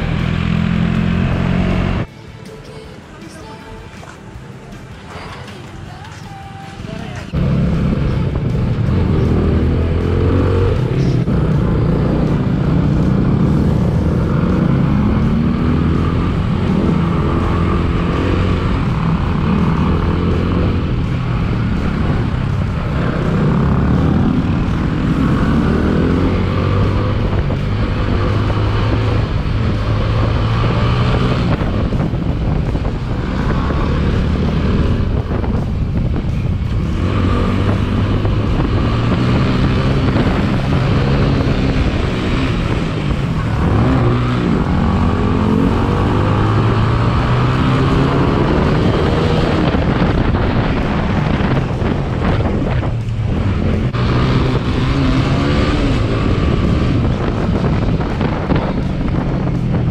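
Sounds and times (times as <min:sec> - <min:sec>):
motorcycle engine revving: 0:00.0 - 0:02.1, 0:07.3 - 0:59.9
wind noise on microphone: 0:07.3 - 0:59.9.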